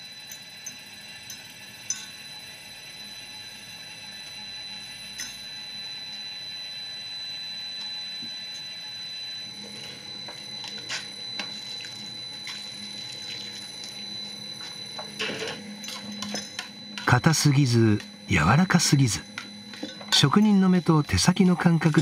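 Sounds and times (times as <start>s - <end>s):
machine hum: 1.9s - 22.0s
wet swishing of grinding mill: 10.6s - 14.7s.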